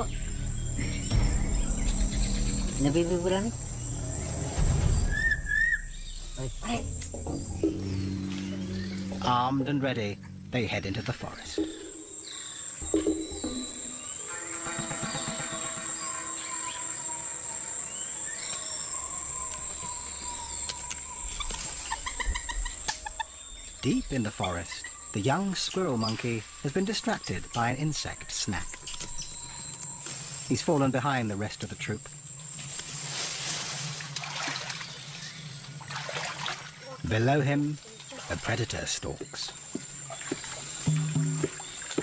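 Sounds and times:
whistled bird calls: 0.0 - 9.5, 11.6 - 30.6
low rumble: 0.0 - 14.0
insects trilling: 0.0 - 42.0.

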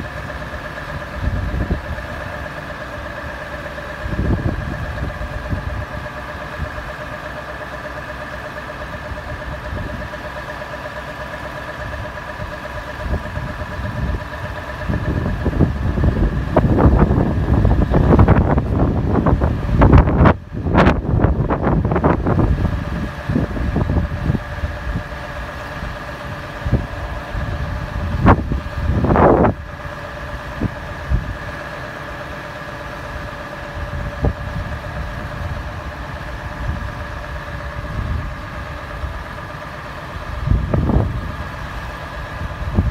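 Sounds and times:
lorry engine running: 0.0 - 42.9
steady whine: 0.0 - 42.9
wind buffeting microphone: 1.0 - 2.3, 4.0 - 6.9, 11.9 - 31.7, 33.0 - 39.4, 40.0 - 42.9.

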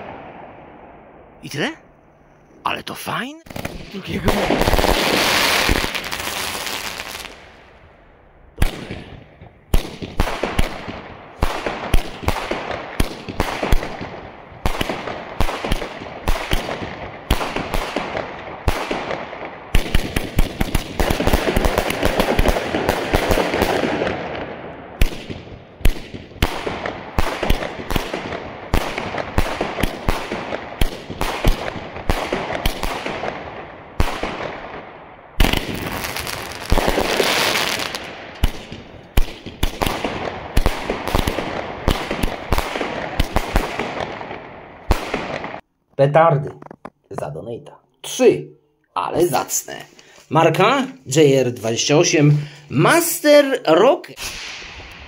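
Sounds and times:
fireworks shots: 0.0 - 1.8, 3.4 - 7.9, 8.5 - 45.6, 54.2 - 55.0
fireworks hissing and crackling: 3.5 - 7.6, 35.4 - 38.5, 54.2 - 55.0.

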